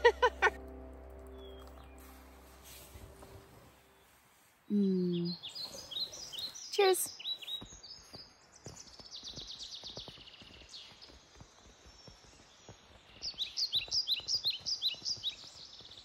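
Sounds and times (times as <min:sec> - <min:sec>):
songbirds singing: 0:03.8 - 0:16.0
footsteps of hikers walking: 0:05.4 - 0:16.0.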